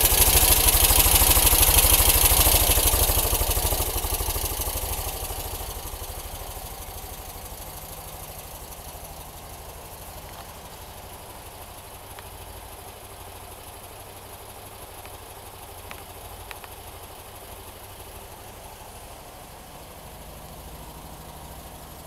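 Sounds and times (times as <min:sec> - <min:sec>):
car engine idling: 0:00.0 - 0:22.0
faint ticks: 0:06.0 - 0:18.4.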